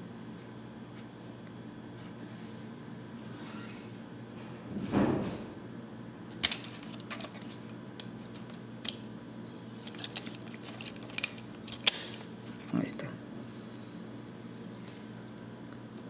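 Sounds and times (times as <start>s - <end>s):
handling rustle: 6.3s - 9.0s, 9.8s - 12.8s.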